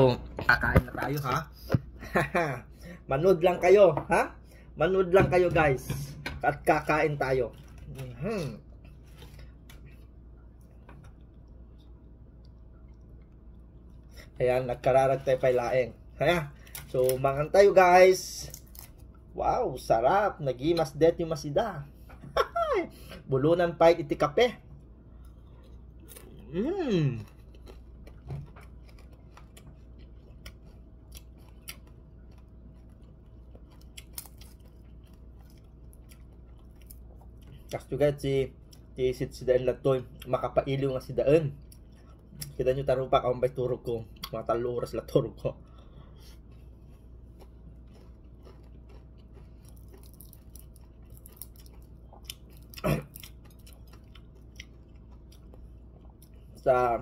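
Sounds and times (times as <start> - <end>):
faint steady hum: 0.0 - 57.0
soft chewing: 6.8 - 19.4, 24.1 - 57.0
man humming mmm: 26.4 - 27.2.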